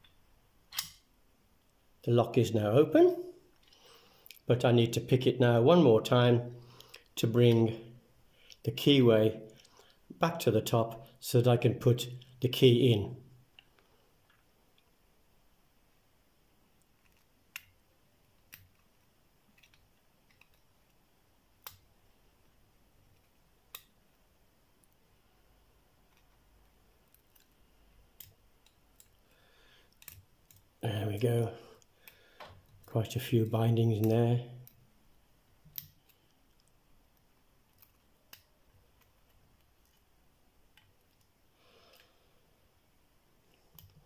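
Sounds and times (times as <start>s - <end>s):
lock pick metal clicks: 0.7s - 1.0s.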